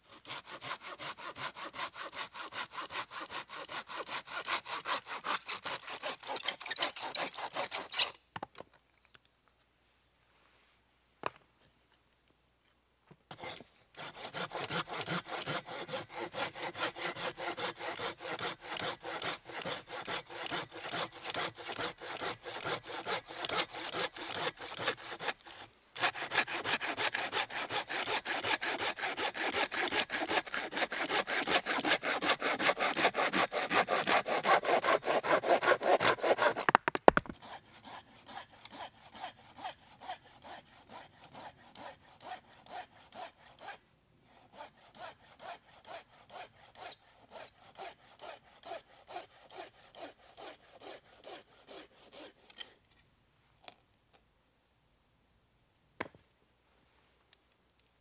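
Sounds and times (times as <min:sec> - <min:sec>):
hand saw cutting log: 0:00.0 - 0:08.2, 0:13.3 - 0:52.8
sharp wood crack: 0:36.5 - 0:37.4.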